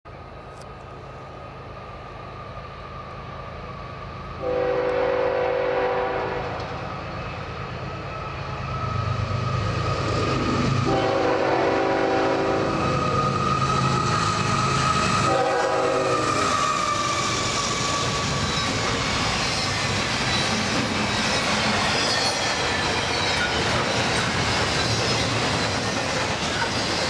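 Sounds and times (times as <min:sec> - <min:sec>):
diesel locomotive engine rumble: 0:00.1 - 0:27.0
train horn blasts: 0:04.4 - 0:06.8, 0:10.8 - 0:12.8, 0:15.2 - 0:16.5.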